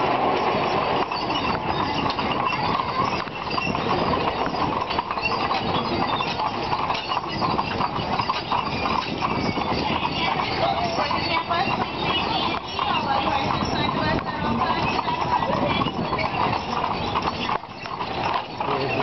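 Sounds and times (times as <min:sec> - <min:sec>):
horse hooves clip-clopping on pavement: 0:00.0 - 0:19.0.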